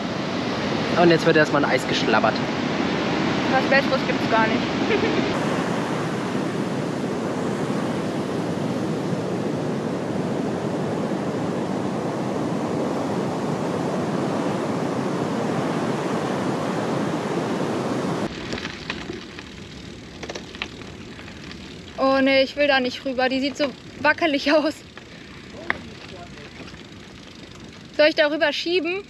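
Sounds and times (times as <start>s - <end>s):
ocean surf rushing: 0.0s - 18.5s
wind: 0.0s - 29.0s.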